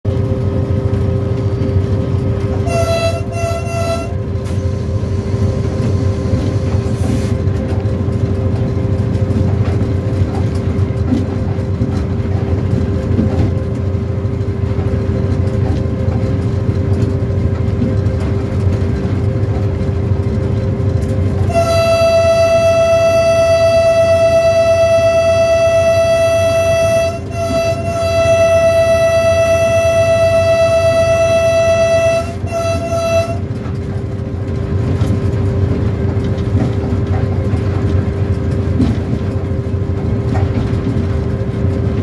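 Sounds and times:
diesel locomotive engine drone: 0.0s - 42.0s
rail rumble: 0.0s - 42.0s
locomotive horn blasts: 2.4s - 4.6s, 21.4s - 33.7s.

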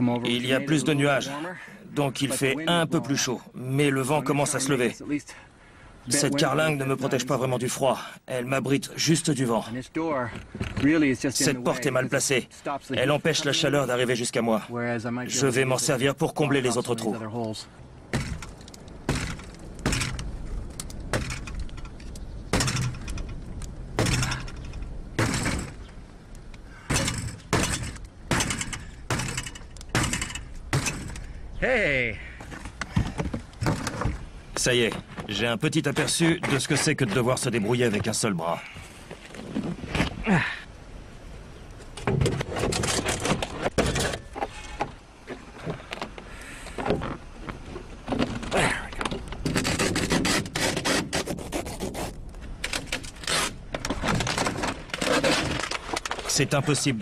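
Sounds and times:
metal door banging and crunching: 18.1s - 20.3s, 22.5s - 23.4s, 25.2s - 25.9s, 26.9s - 31.2s, 42.0s - 44.8s
metal parts rattling and clanking: 18.2s - 25.9s, 26.9s - 31.3s, 42.0s - 44.9s, 52.6s - 56.4s.

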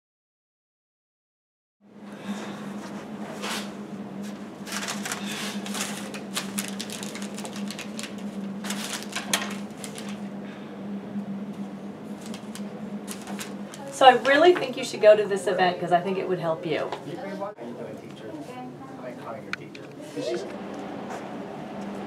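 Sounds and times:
steady low hum: 1.8s - 22.0s
paper rustling and crumpling: 4.6s - 10.2s, 12.2s - 14.0s.

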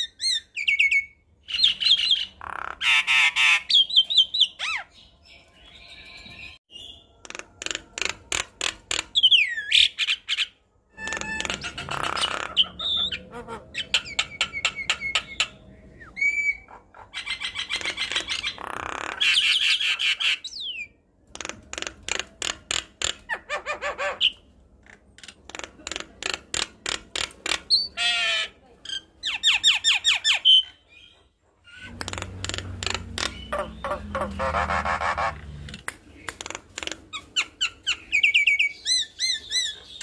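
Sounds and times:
myna bird harsh squawking: 27.7s - 28.6s, 32.8s - 35.6s.

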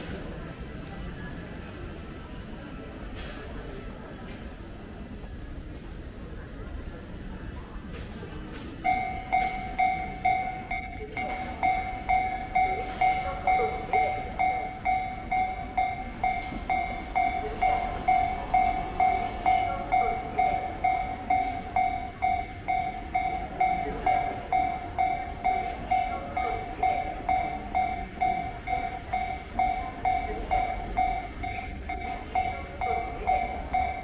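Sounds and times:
railroad crossing two-tone chime: 8.0s - 34.0s.

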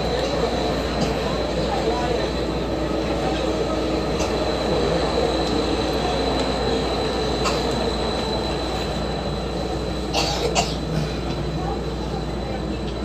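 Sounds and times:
electric train rumble: 0.0s - 13.0s.

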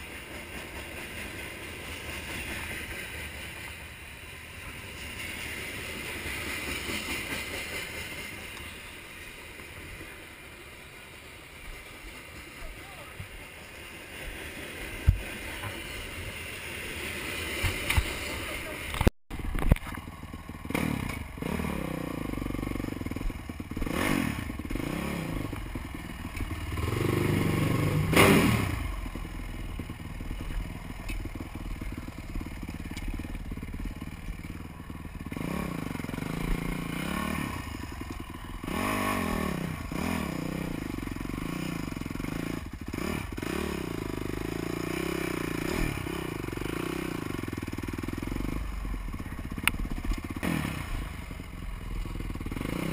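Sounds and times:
motorcycle engine revving: 0.0s - 52.9s
motorcycle thumps and clatter: 15.0s - 15.8s, 17.5s - 18.2s, 18.9s - 21.4s, 29.7s - 36.9s.

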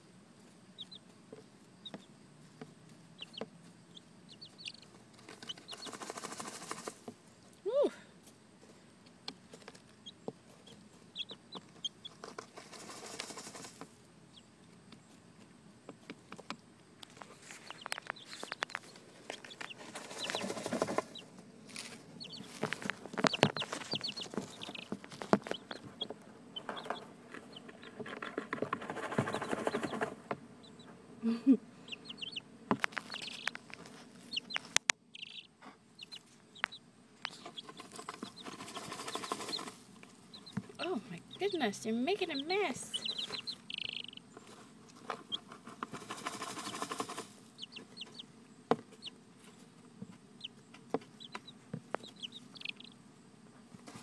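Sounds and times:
chicks peeping: 0.4s - 7.6s, 8.2s - 54.0s
hens clucking: 0.8s - 7.2s, 9.3s - 53.1s.

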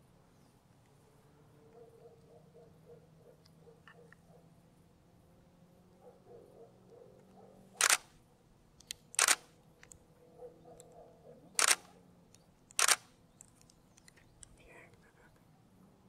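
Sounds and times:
camera shutter clicks: 7.8s - 8.1s, 8.8s - 9.5s, 11.6s - 11.9s, 12.7s - 13.1s.

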